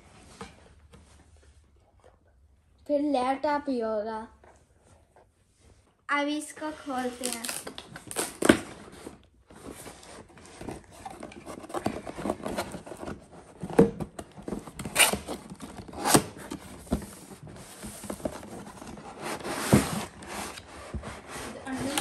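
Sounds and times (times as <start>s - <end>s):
cardboard scraping and tearing: 6.9s - 22.0s.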